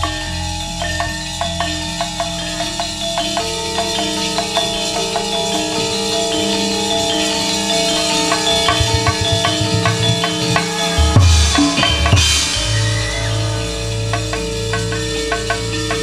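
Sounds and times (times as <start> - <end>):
metallophones ringing: 0.0 - 16.0
drum strokes: 8.0 - 16.0.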